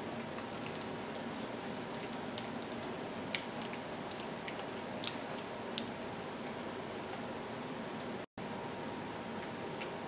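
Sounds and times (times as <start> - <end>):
spatula stirring sticky mix: 0.0 - 6.1.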